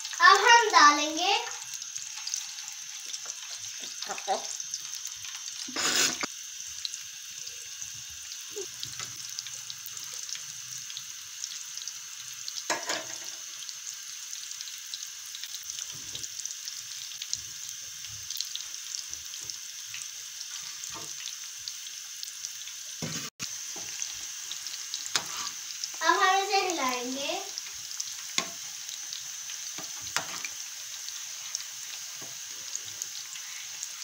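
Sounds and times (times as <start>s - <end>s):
batter sizzling in hot oil: 0.0s - 34.0s.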